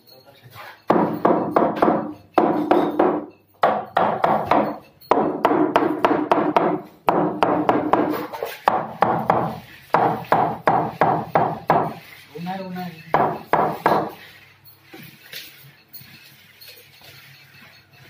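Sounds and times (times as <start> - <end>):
hammer blows on panel: 0.9 - 12.0.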